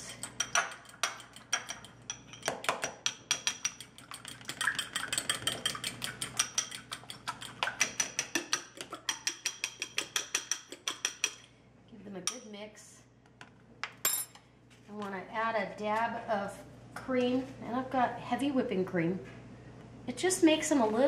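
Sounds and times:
spoon clinking against glass bowl: 0.2 - 11.4.

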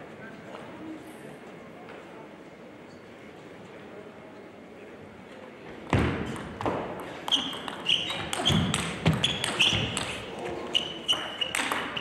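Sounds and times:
shoes squeaking: 7.0 - 12.0
table tennis ball clicking: 7.3 - 10.1, 11.1 - 12.0.

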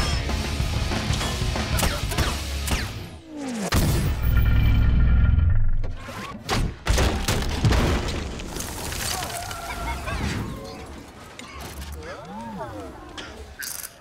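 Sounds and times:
debris crashing and shattering: 6.8 - 11.7.

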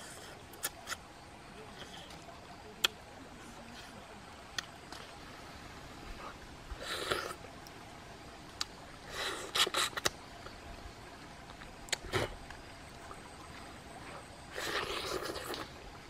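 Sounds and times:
mouth clicks and lip smacks: 0.5 - 1.0, 9.5 - 10.2, 11.5 - 12.4.

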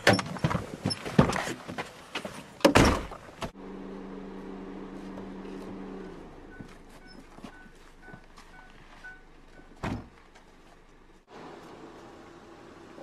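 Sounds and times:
car door shutting: 9.8 - 10.1
car door knocks and clunks: 9.8 - 10.2.

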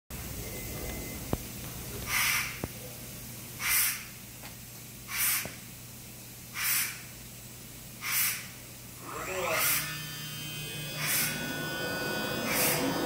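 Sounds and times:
low machine hum: 0.1 - 2.0, 7.1 - 13.0
short air hisses: 3.6 - 4.0, 5.1 - 5.4, 6.6 - 7.0, 8.0 - 8.5.

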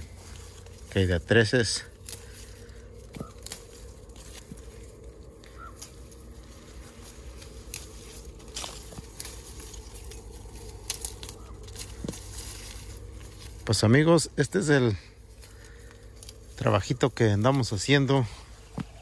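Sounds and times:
leaves and twigs rustling: 0.0 - 19.0
low steady hum: 0.0 - 19.0
apples snapping off branch: 1.8 - 4.6, 7.3 - 13.6, 15.4 - 16.5.

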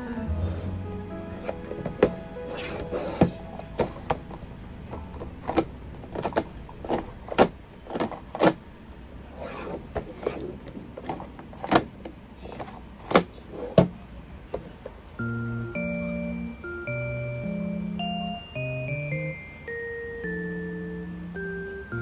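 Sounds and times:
plastic drawers sliding: 0.3 - 15.0.

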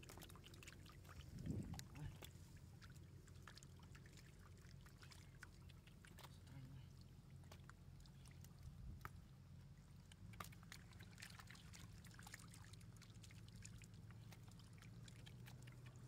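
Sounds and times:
small splashes in muddy water: 0.0 - 16.0
steady low hum: 0.0 - 16.0.

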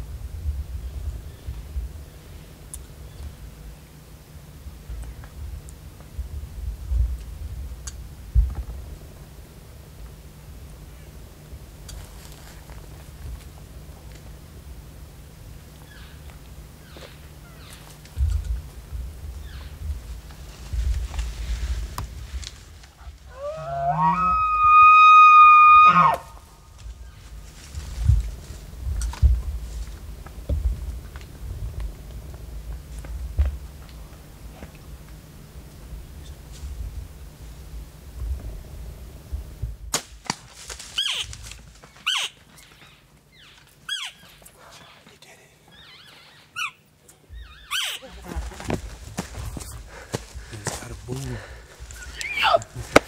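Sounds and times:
elk bugling: 23.0 - 26.5, 51.4 - 52.8
high squealing calls: 23.3 - 26.3, 41.0 - 41.3, 42.0 - 45.1, 45.7 - 48.5, 52.0 - 52.6
sharp crack: 39.9 - 41.6.

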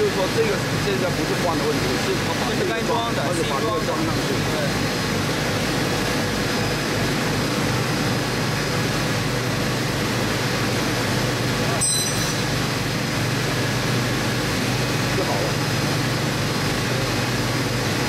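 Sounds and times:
factory machinery hum: 0.0 - 18.0
sharp metallic clink: 11.8 - 12.6.

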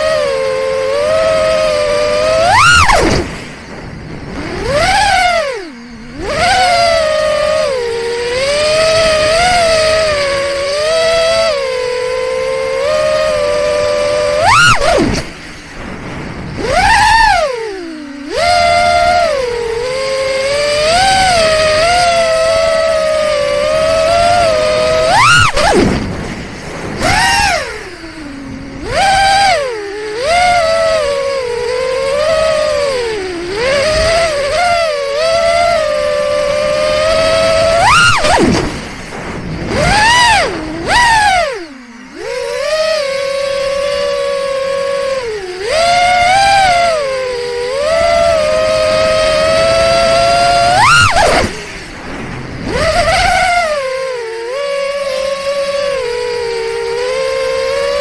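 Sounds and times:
drone propellers whining: 0.0 - 58.0.

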